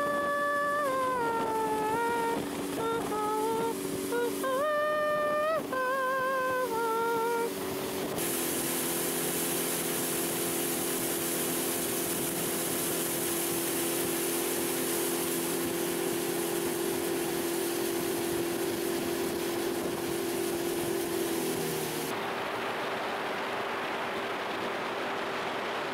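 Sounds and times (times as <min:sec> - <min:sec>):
short wavering tune: 0:00.0 - 0:07.6
outboard motor running: 0:00.0 - 0:25.9
rush of water and wind: 0:00.0 - 0:25.9.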